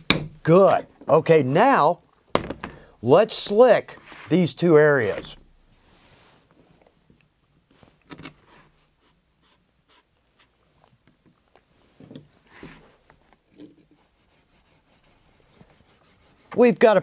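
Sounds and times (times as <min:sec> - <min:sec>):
scratchy rubbing of leather: 0:13.8 - 0:16.6.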